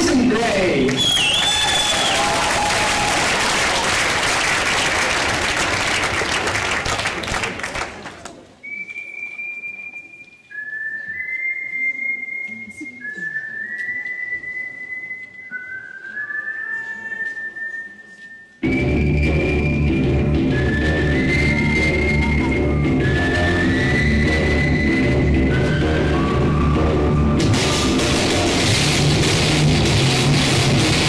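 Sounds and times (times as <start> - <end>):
audience applause: 0.0 - 8.4
long steady whistled notes: 1.0 - 2.2, 8.6 - 28.0.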